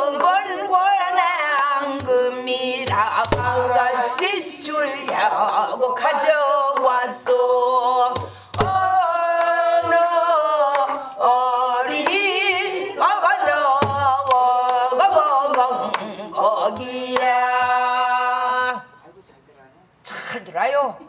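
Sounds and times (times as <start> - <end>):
woman singing folk song: 0.0 - 18.8
deep drum thumps: 2.0 - 4.3, 8.1 - 10.8, 13.7 - 14.8.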